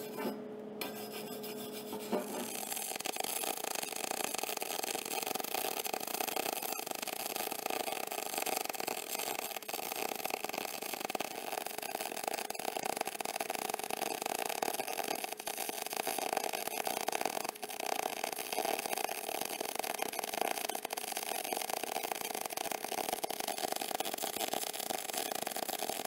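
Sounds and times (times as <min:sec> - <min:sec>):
welding arc crackling: 0:01.8 - 0:26.0.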